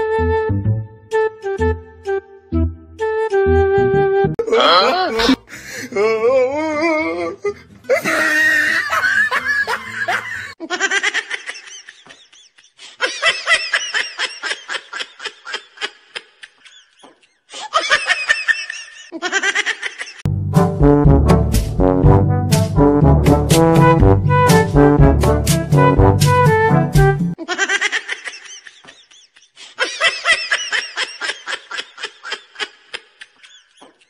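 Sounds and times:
high-pitched vocal sounds: 0:04.4 - 0:08.2
person laughing: 0:04.4 - 0:20.2, 0:27.4 - 0:34.0.

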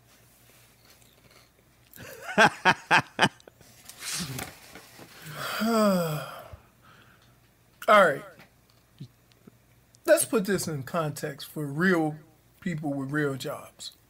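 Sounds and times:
man laughing: 0:02.0 - 0:03.5.

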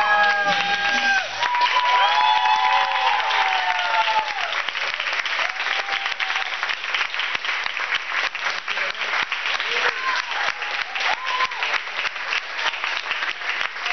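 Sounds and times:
high whoops: 0:00.0 - 0:06.6, 0:09.6 - 0:11.8
audience clapping and cheering: 0:00.0 - 0:13.9.

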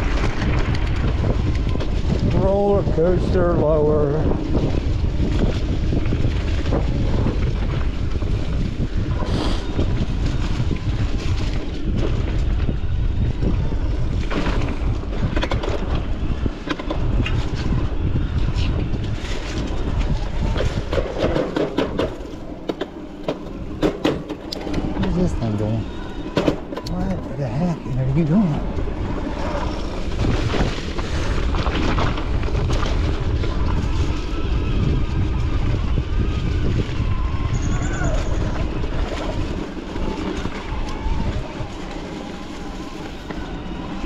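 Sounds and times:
bike tyres rolling on dirt: 0:00.0 - 0:44.0
wind buffeting microphone: 0:00.0 - 0:44.0
bike clicks and knocks: 0:14.1 - 0:17.8, 0:18.6 - 0:25.1.

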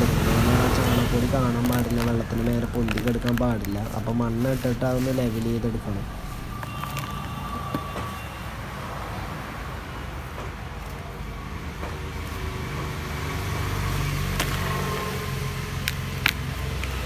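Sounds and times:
low rumble: 0:00.0 - 0:07.6
soil scooped and dropped: 0:00.8 - 0:07.2.

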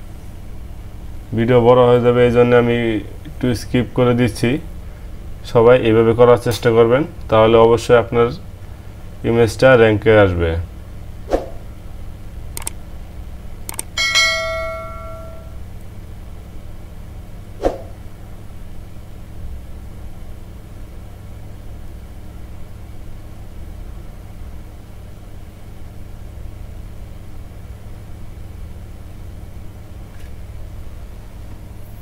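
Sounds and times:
steady low hum: 0:00.0 - 0:32.0
bell ding: 0:14.0 - 0:15.6.

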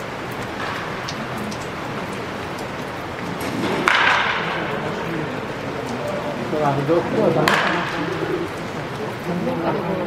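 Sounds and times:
bats hitting balls: 0:03.7 - 0:04.6.

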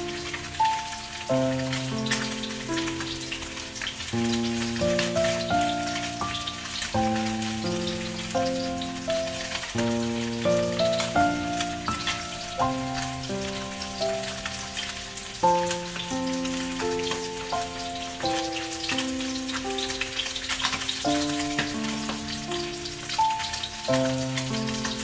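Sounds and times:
fish sizzling in oil: 0:00.0 - 0:25.0.

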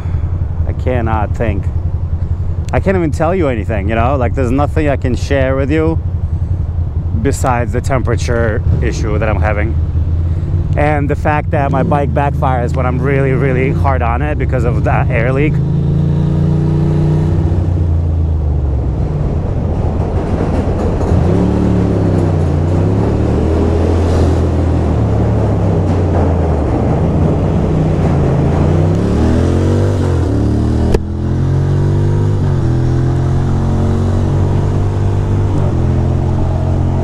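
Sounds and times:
motorcycle engine revving: 0:08.5 - 0:37.0
motorcycle backfire pop: 0:30.8 - 0:31.1.

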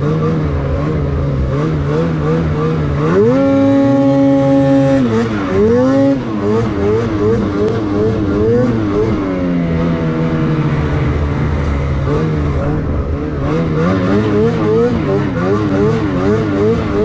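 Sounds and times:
snowmobile engine revving: 0:00.0 - 0:17.0.

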